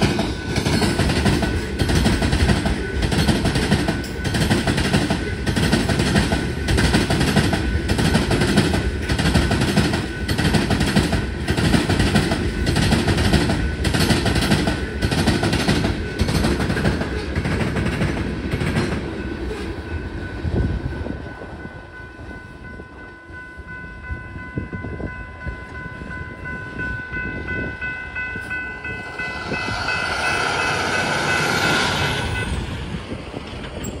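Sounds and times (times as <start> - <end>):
train wheels clacking on rail joints: 0.0 - 19.8
steady high tone: 19.0 - 34.0
rushing sound: 28.5 - 34.0.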